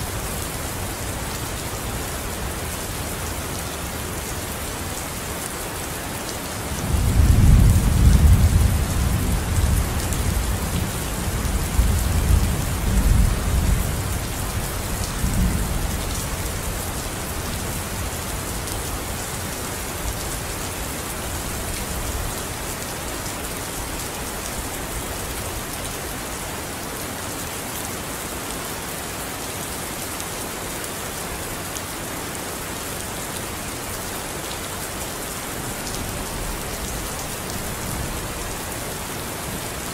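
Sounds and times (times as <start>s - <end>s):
steady rain hissing: 0.0s - 39.9s.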